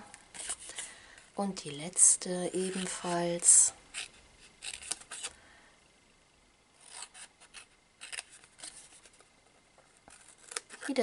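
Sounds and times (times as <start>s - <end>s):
scissors cutting cardstock: 4.0s - 5.3s, 10.1s - 11.0s.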